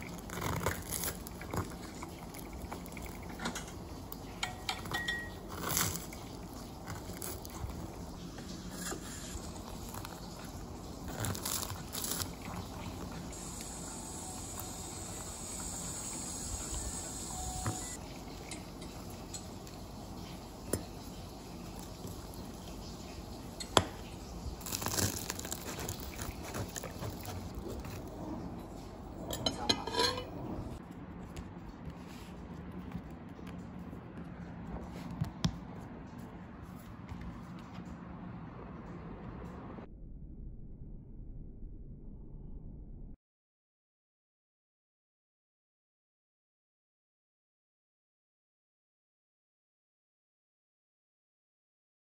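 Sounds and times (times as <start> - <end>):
faint steady hum: 0.0 - 33.9
fork clinking on ceramic bowl: 4.4 - 5.5, 29.3 - 30.3.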